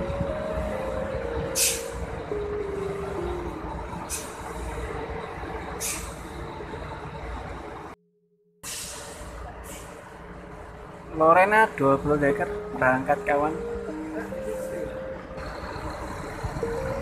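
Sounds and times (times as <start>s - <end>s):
tune of stepped tones: 0.0s - 5.5s, 12.0s - 17.0s
bus engine idling: 0.0s - 8.0s, 8.6s - 17.0s
air brake hisses: 1.6s - 2.0s, 4.1s - 4.8s, 5.8s - 6.3s, 8.6s - 10.1s.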